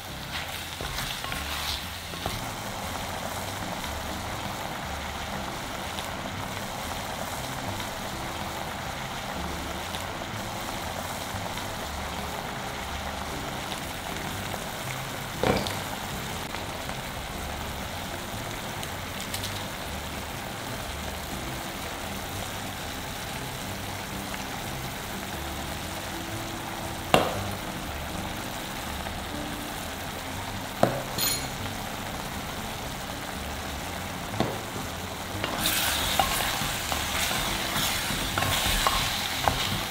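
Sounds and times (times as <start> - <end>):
meat and sauce sizzling: 0.0 - 39.9.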